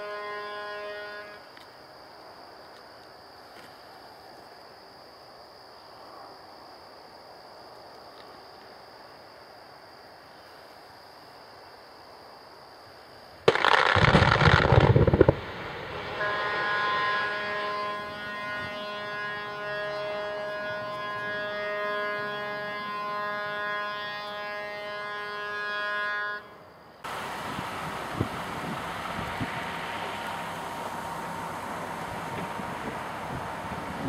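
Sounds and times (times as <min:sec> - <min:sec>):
steady horn tone: 0:00.0 - 0:01.5, 0:16.0 - 0:34.0
loud rock blast: 0:13.5 - 0:18.3
wind on microphone: 0:27.3 - 0:29.9, 0:32.0 - 0:34.0.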